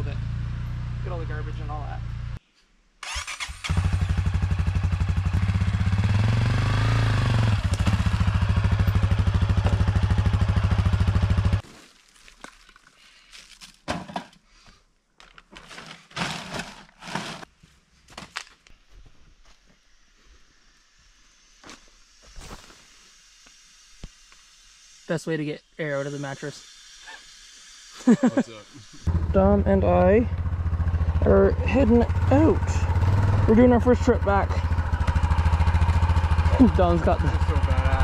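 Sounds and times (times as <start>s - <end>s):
dirt bike engine revving: 3.0s - 11.6s, 27.9s - 38.0s.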